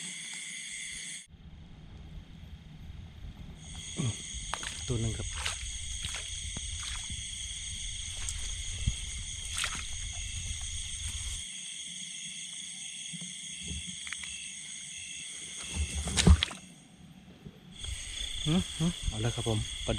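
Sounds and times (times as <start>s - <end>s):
night insects trilling: 0.0s - 1.3s, 2.5s - 19.9s
low rumble: 1.3s - 11.4s.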